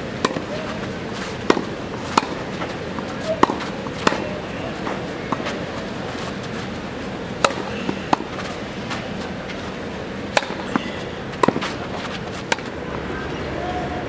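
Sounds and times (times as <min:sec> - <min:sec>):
tennis ball pops: 0:03.3 - 0:04.4, 0:07.4 - 0:08.3, 0:10.3 - 0:11.8.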